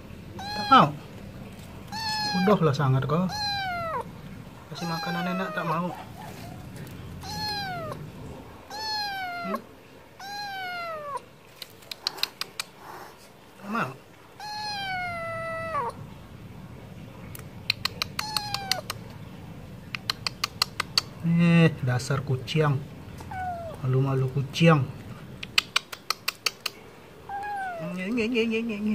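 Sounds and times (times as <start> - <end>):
kitten meowing: 0.4 - 1.0, 1.9 - 4.1, 4.7 - 11.3, 14.4 - 16.0, 17.7 - 19.0, 23.2 - 23.9, 27.3 - 28.2
sharp clicks: 11.6 - 12.8, 17.3 - 19.1, 19.9 - 21.2, 25.4 - 26.8.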